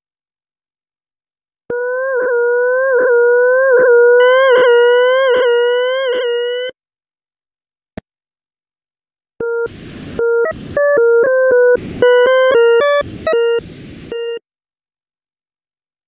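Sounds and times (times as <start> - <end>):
buzzy synthesized tone: 1.8 - 6.7, 9.4 - 14.4.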